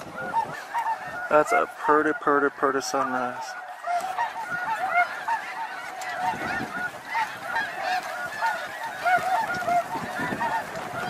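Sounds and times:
geese honking: 0.0s - 11.0s.

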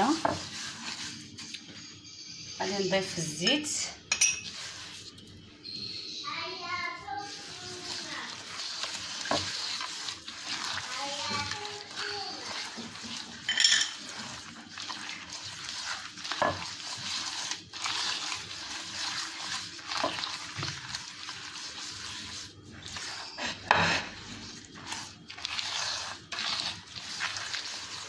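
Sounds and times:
fingers scraping paste in clay bowl: 11.6s - 24.1s, 24.7s - 28.0s.

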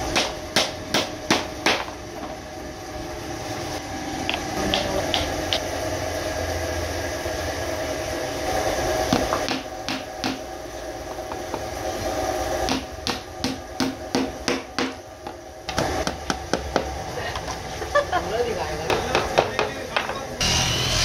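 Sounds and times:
steady hum: 0.0s - 21.0s
hammer striking nail into wood: 0.1s - 1.9s, 9.1s - 10.4s, 12.7s - 15.0s.

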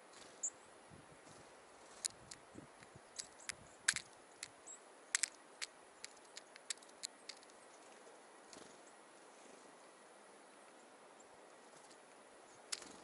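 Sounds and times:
beak tapping seeds on metal tin: 3.2s - 4.5s, 5.1s - 7.5s.

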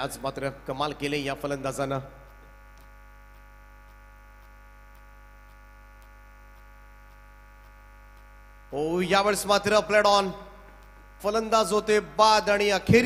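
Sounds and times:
electrical mains hum: 0.0s - 13.0s
faint regular ticks: 1.7s - 8.8s, 10.6s - 11.3s.

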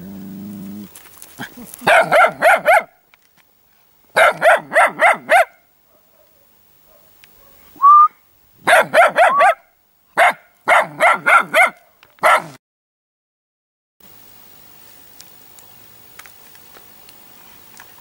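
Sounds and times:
short rising whistle: 7.8s - 8.2s
puppy yipping: 8.7s - 9.6s, 10.2s - 12.5s.

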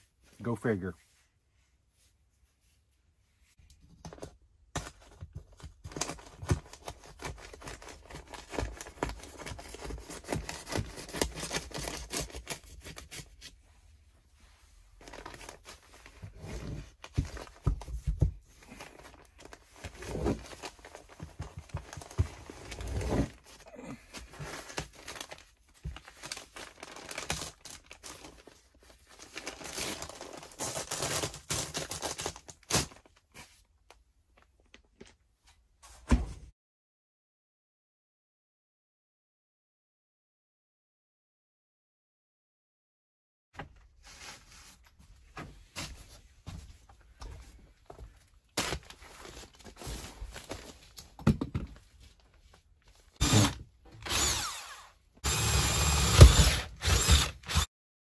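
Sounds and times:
paper facing crinkling: 14.8s - 35.3s.

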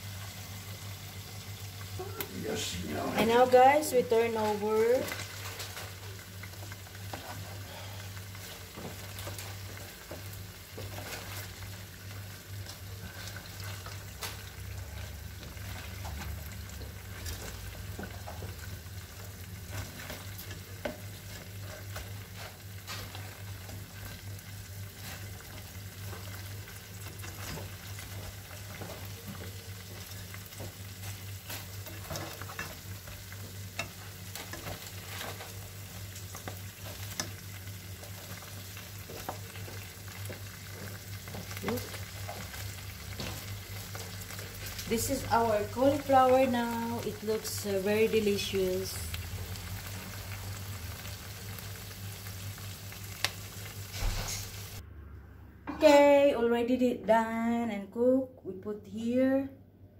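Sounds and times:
food sizzling in sauce: 0.0s - 54.8s.

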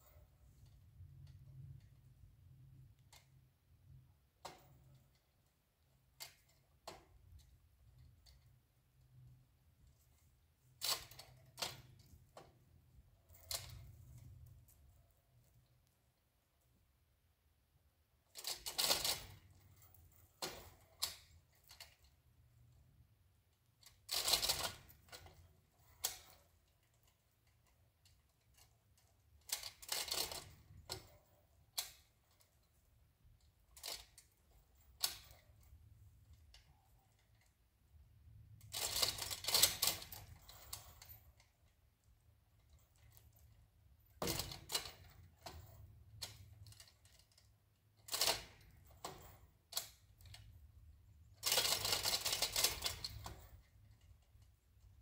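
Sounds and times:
hoist chain clattering and ratcheting: 23.8s - 32.8s, 38.6s - 41.7s, 51.3s - 54.9s.

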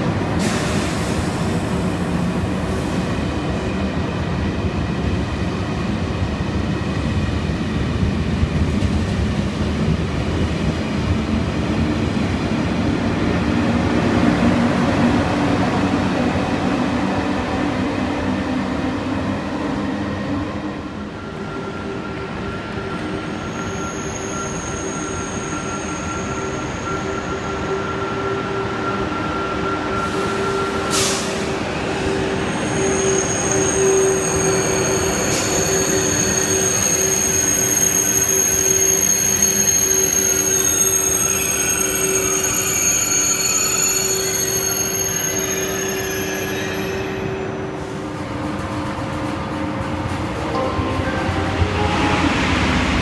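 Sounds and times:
train wheels rumbling on rail: 0.0s - 53.0s
train brakes squealing: 0.4s - 3.1s, 21.0s - 48.2s.

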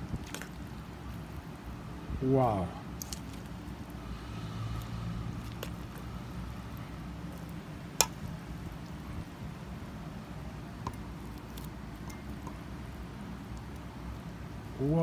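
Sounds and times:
steady low hum: 0.0s - 15.0s
salad tossed with wet squishing: 4.7s - 6.2s.

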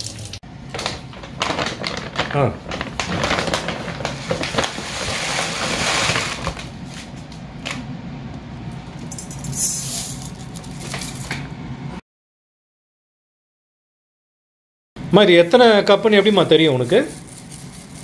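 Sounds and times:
foil bag crinkling: 0.0s - 7.2s, 16.6s - 18.0s.

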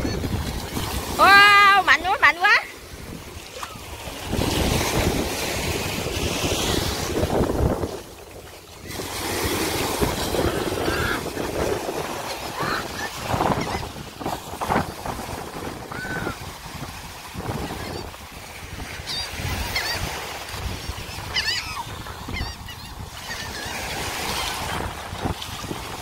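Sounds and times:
seabirds calling: 0.0s - 4.4s, 6.0s - 14.8s, 17.5s - 25.0s
surf rushing: 0.0s - 26.0s
wind on microphone: 0.0s - 26.0s.

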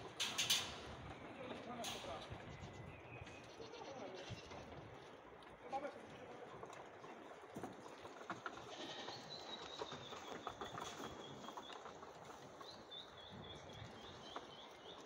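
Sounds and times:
bird singing: 8.9s - 15.0s.

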